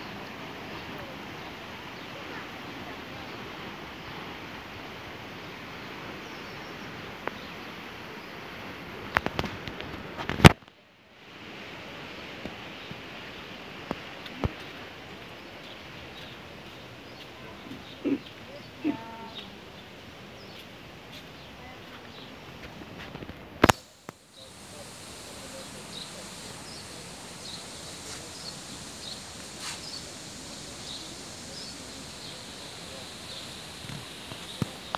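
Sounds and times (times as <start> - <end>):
outdoor background hiss: 0.0 - 34.9
small bird chirping: 25.5 - 34.9.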